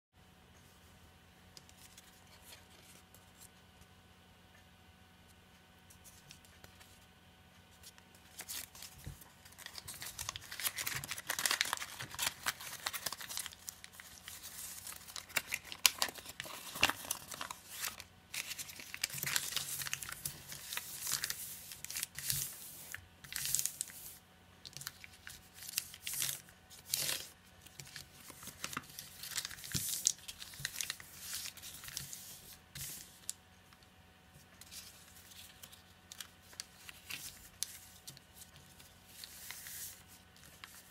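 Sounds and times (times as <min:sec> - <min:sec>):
paper crinkling and rustling: 0:07.8 - 0:33.8, 0:34.4 - 0:40.9.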